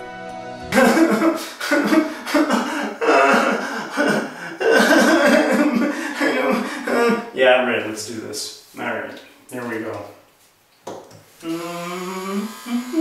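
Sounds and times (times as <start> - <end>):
man making wordless vocal noises: 0.7 - 7.5, 11.4 - 13.0.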